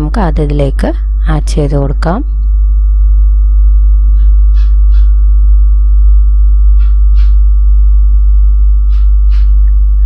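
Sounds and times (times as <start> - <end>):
loud electrical hum: 0.0 - 10.0.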